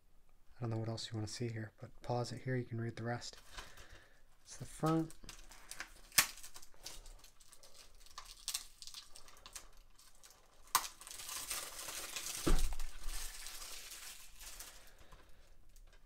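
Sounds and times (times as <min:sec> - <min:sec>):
plastic film crinkling and tearing: 0:04.5 - 0:16.0
plastic wrap ticking: 0:04.7 - 0:16.0.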